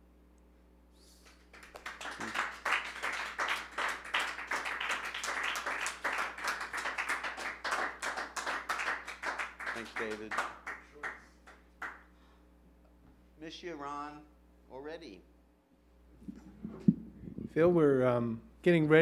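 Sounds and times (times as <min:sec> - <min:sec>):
audience applauding: 0:01.3 - 0:12.0.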